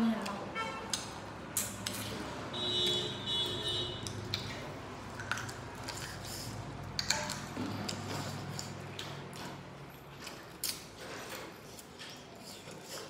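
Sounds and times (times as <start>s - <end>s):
wet chewing and lip smacks: 4.0s - 13.0s.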